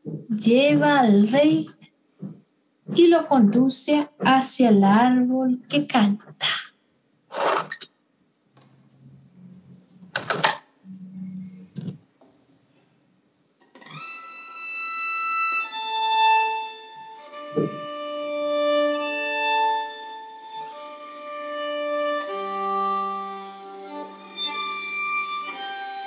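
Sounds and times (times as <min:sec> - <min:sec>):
soft thump: 0:02.2 - 0:03.0, 0:17.6 - 0:17.8
solo violin playing slow notes: 0:13.9 - 0:26.0
short knock: 0:17.5 - 0:17.9.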